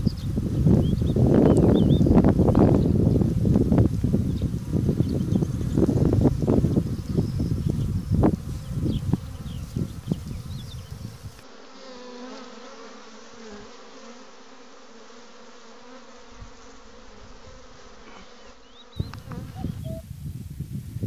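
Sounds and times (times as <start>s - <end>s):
flying insect buzzing: 0.0s - 20.9s.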